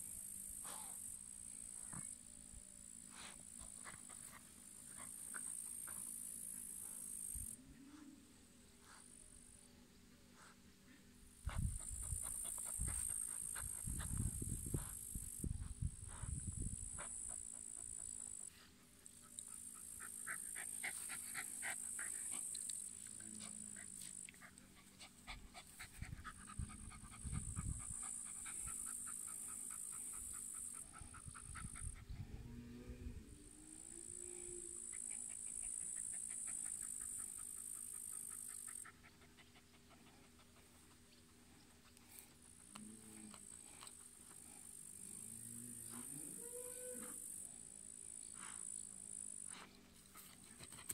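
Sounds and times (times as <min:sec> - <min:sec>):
dog panting: 0:03.1 - 0:07.1, 0:11.4 - 0:22.8, 0:23.4 - 0:32.1, 0:34.9 - 0:42.6.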